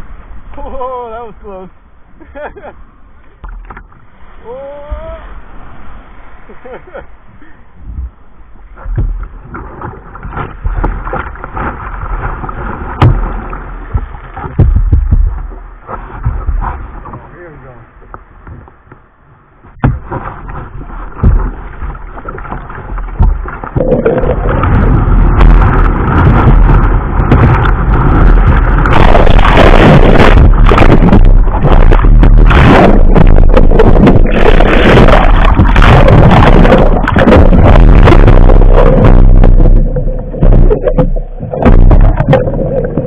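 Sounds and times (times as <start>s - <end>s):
sea water rushing and splashing: 3.0s - 7.2s, 7.9s - 43.0s
heavy thumps: 12.4s - 17.3s, 19.7s - 43.0s.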